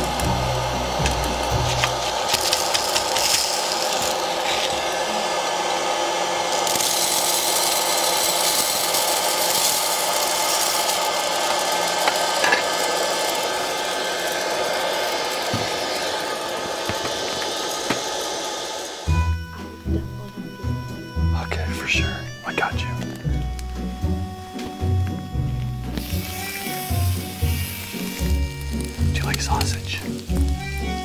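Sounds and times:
kernels rattling: 0:00.0 - 0:05.1, 0:06.4 - 0:19.1, 0:26.0 - 0:31.0
popcorn popper fan blowing: 0:00.0 - 0:31.0.

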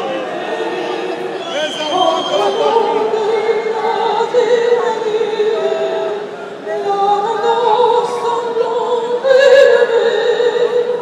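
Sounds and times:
crowd chanting: 0:00.0 - 0:06.8.

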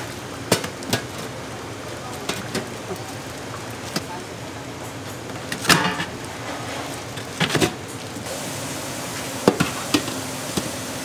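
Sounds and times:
steady hiss: 0:07.9 - 0:11.0.

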